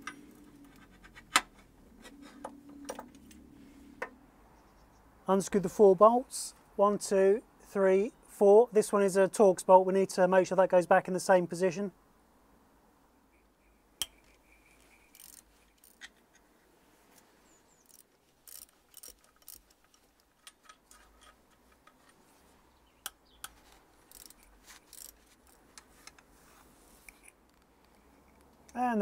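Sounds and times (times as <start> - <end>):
hand tools clicking on bolts: 15.1 - 16.4, 17.8 - 22.2, 23.0 - 26.2.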